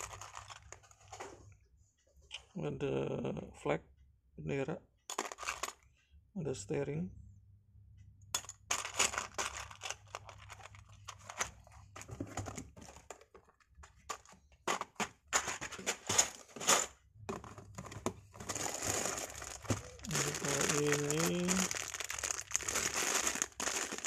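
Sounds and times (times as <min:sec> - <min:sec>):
plastic pieces clattering in tub: 0:00.0 - 0:00.8, 0:05.1 - 0:05.8, 0:08.4 - 0:24.0.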